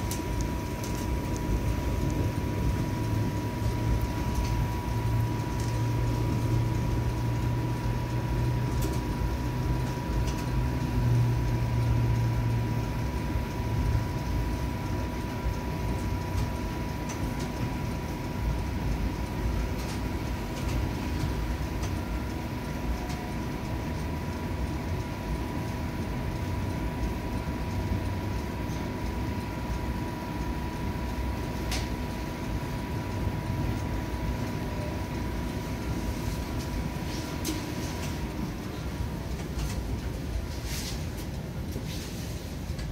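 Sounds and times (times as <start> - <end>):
heavy low hum: 0.0 - 24.6
constant high whine: 0.0 - 42.9
streetcar rumbling on rails: 0.0 - 42.9.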